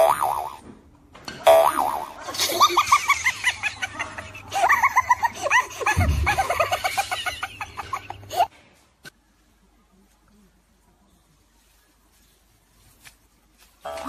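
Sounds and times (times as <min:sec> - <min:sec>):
high-pitched laughter: 0:02.2 - 0:08.5
low thump: 0:05.9 - 0:06.8.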